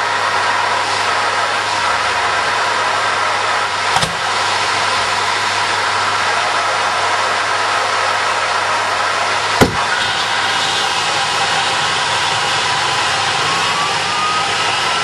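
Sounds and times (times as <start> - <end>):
jet engine rushing with high tone: 0.1 - 15.0
sharp pop: 3.9 - 4.3.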